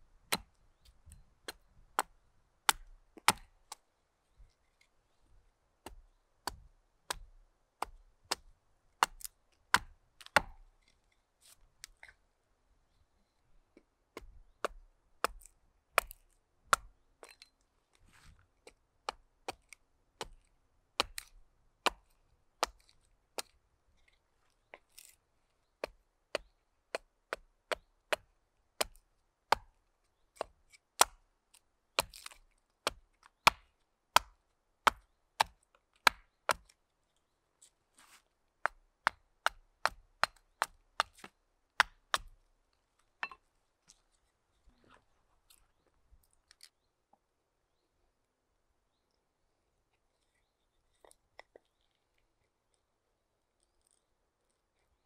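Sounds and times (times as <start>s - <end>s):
hatchet chopping wood: 0.3s - 2.1s, 2.7s - 3.8s, 5.8s - 10.7s, 14.1s - 17.4s, 19.0s - 23.6s, 25.8s - 29.8s, 30.4s - 31.2s, 32.0s - 36.7s, 38.6s - 42.4s.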